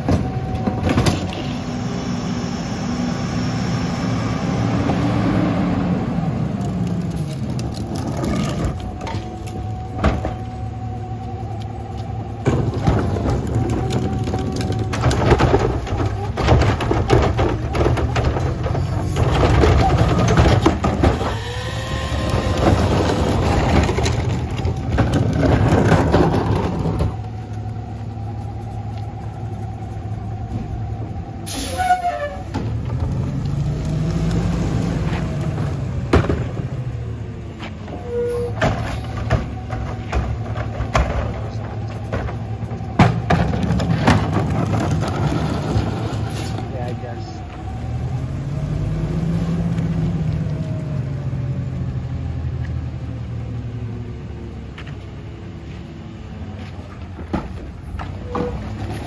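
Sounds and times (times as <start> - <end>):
clanks of carts and metal: 0.0 - 1.7, 6.6 - 10.8, 11.5 - 29.8, 30.4 - 48.3, 54.7 - 59.0
garbage truck diesel engine revving: 0.0 - 30.6, 31.4 - 38.1, 38.9 - 54.0.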